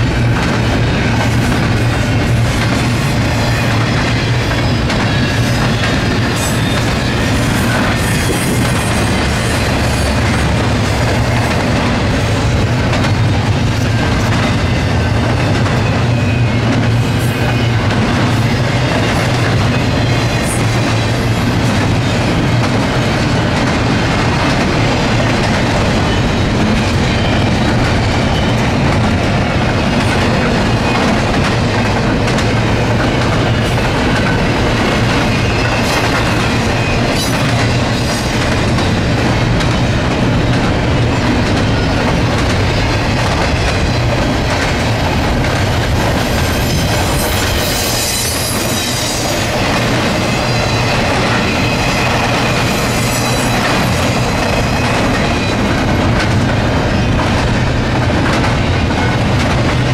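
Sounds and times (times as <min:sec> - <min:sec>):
freight train rumbling past: 0:00.0 - 0:59.9.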